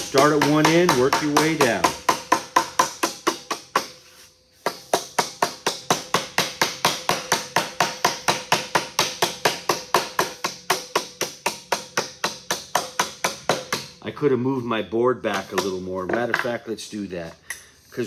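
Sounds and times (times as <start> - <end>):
rubber mallet tapping steel sheet: 0.0 - 4.0, 4.6 - 14.1.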